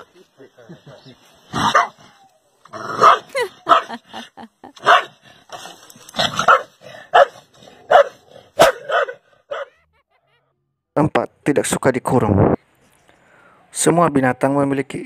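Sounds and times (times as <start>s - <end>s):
dog barking: 1.6s - 2.0s, 2.9s - 4.0s, 4.8s - 5.2s, 6.2s - 9.9s.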